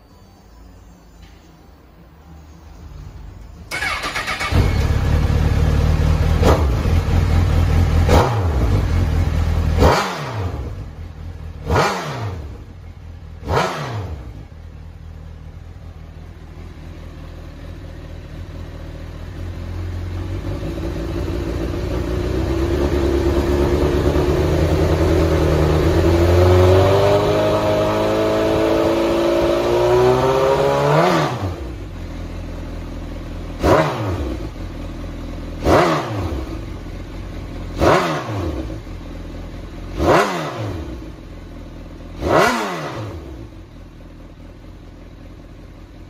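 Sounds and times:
motorcycle engine idling: 0:02.9 - 0:26.7, 0:31.5 - 0:46.0
motorcycle starter cranking: 0:03.7 - 0:05.3
motorcycle engine revving: 0:03.7 - 0:46.0.

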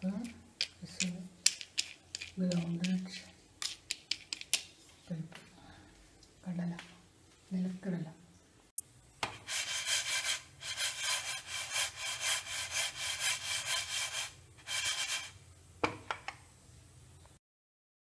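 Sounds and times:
lentils scraping in a dry pan: 0:01.4 - 0:04.3, 0:09.4 - 0:15.4.

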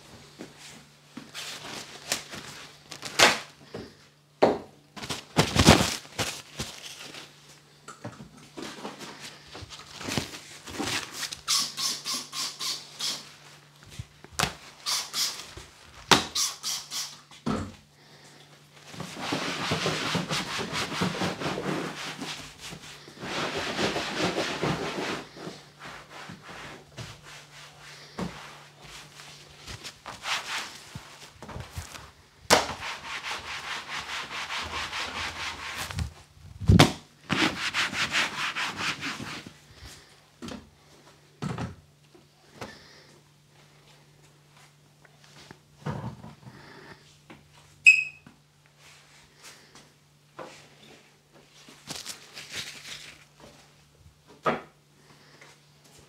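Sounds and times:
brief squeak: 0:47.9 - 0:48.2.

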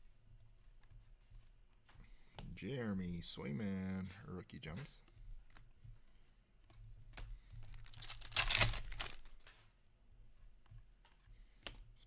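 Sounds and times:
cards and wrapper rustling: 0:07.6 - 0:09.6
soft clicks of cards: 0:10.6 - 0:11.9.

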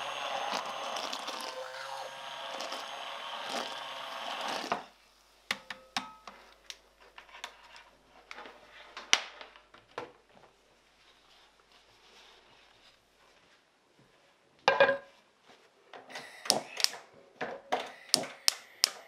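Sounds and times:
blender knocking and clicking: 0:00.0 - 0:04.9
immersion blender whirring: 0:00.0 - 0:04.9.

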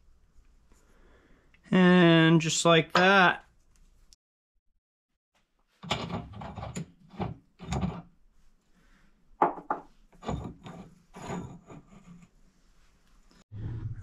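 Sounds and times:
metal parts scraping and knocking: 0:05.8 - 0:08.1, 0:10.1 - 0:12.3.

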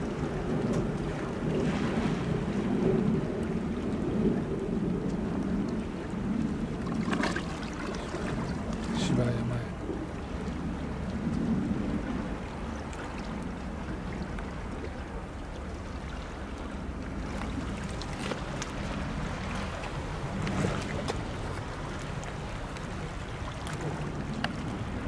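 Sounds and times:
wind on microphone: 0:00.0 - 0:25.0
water lapping on rocky shore: 0:05.7 - 0:25.0
small sharp water splashes: 0:06.8 - 0:08.9.

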